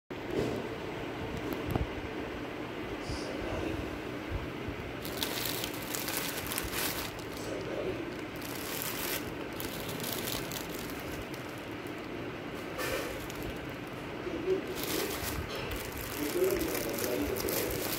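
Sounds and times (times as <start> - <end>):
steady low hum: 0.1 - 17.9
crinkling handling noise: 5.0 - 17.9.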